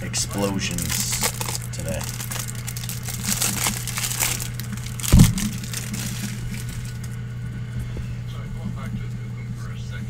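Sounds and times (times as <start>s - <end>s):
foil wrapper crinkling: 0.3s - 7.2s.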